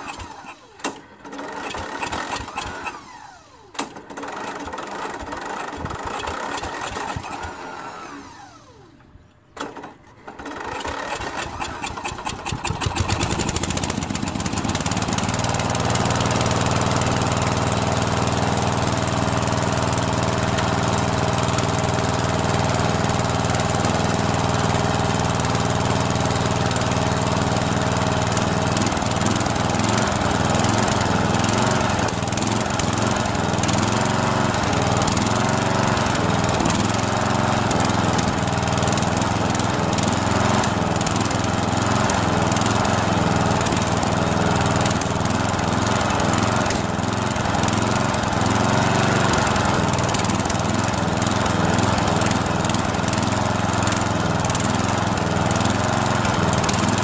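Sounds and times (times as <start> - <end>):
lawn mower engine running: 0.0 - 57.0.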